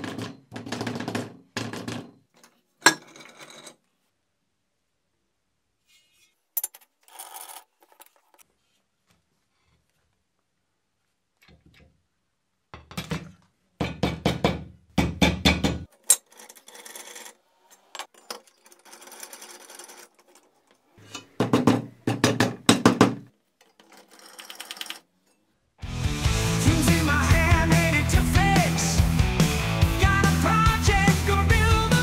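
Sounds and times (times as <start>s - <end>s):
metal scraping: 15.9s - 21.4s.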